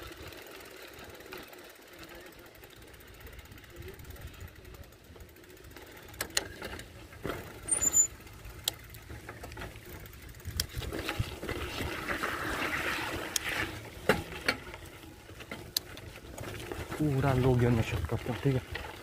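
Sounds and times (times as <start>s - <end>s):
motorcycle engine rumble: 0.0s - 19.0s.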